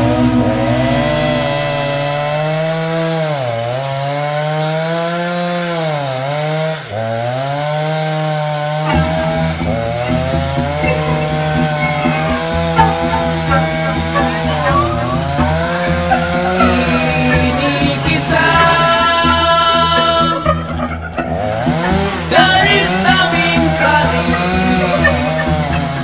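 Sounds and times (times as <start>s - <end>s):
chainsaw running at high revs: 0.0s - 26.0s
chainsaw cutting into stump: 1.1s - 12.7s.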